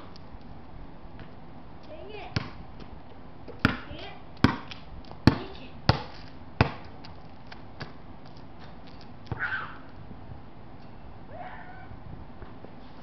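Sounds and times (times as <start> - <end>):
basketball bouncing: 2.3 - 2.6, 3.5 - 7.1.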